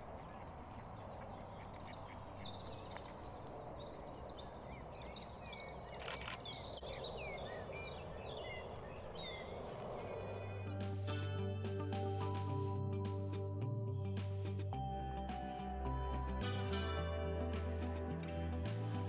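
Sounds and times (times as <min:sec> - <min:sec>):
small birds singing and chirping: 0:00.0 - 0:11.2.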